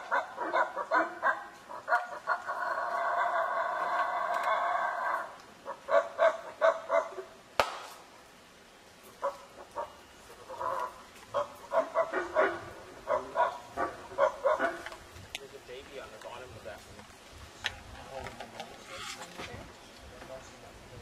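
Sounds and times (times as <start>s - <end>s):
monkey grunting barks: 0.0s - 7.4s, 9.1s - 15.0s.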